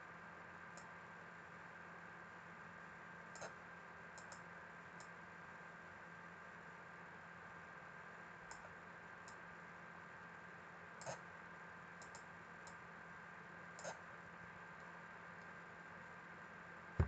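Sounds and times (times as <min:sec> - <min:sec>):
quiet steady hum: 0:00.0 - 0:17.0
computer mouse clicks: 0:03.4 - 0:03.6, 0:04.2 - 0:04.4, 0:12.0 - 0:12.8, 0:13.8 - 0:14.0.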